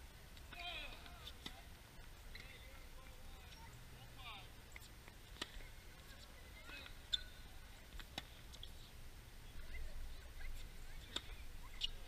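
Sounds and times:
tennis balls bouncing on court: 0.4s - 3.2s, 4.7s - 8.8s, 10.5s - 12.0s
tennis balls struck by racquets: 4.7s - 7.3s, 7.9s - 8.7s, 11.0s - 12.0s.

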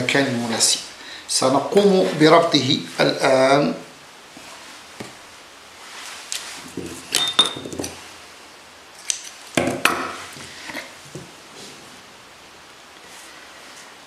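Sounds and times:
metal tools clinking on a tabletop: 7.1s - 8.0s.

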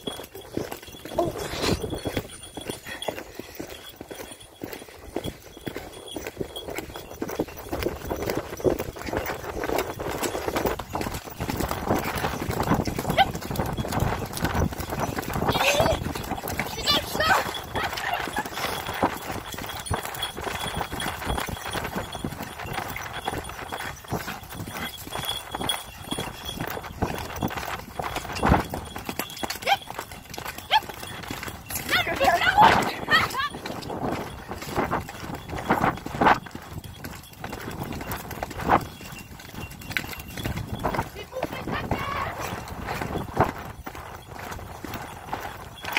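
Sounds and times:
horse hoofbeats on muddy track: 0.0s - 45.9s.

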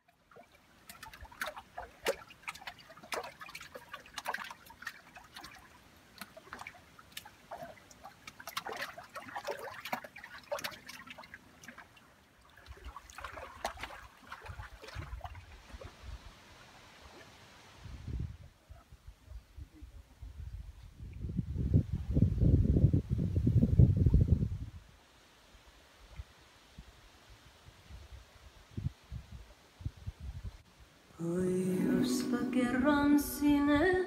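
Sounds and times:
water trickling and splashing: 0.0s - 17.9s
wind rumble on microphone: 17.7s - 25.0s, 26.8s - 30.6s.

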